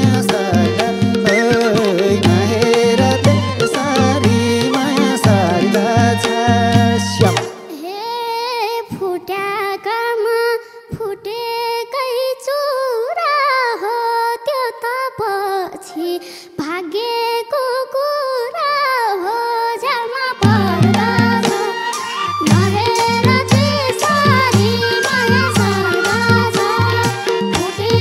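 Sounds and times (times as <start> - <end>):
drums and band playing: 0.0 - 7.7, 20.4 - 28.0
girl singing folk song: 7.7 - 28.0.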